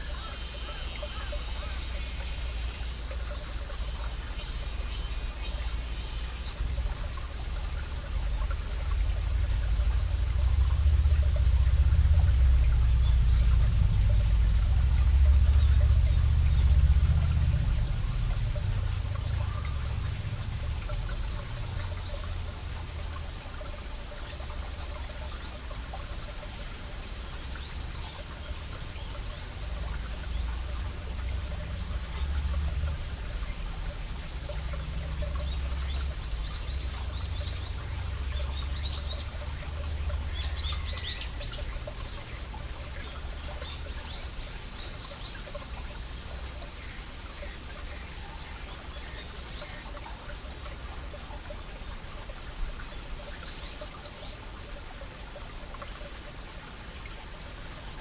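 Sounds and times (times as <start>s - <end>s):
birds chirping: 0.0s - 25.8s
stream trickling over rocks: 0.0s - 58.0s
steady low rumble: 1.6s - 23.4s.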